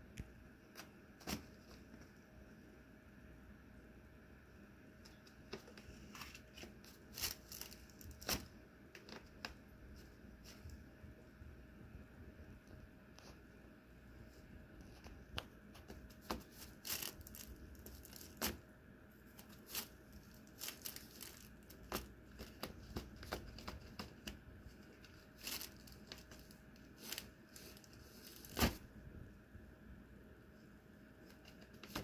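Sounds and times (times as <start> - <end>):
nylon fabric crinkling: 6.1 - 8.4, 16.5 - 18.6, 19.4 - 22.9, 24.8 - 28.8.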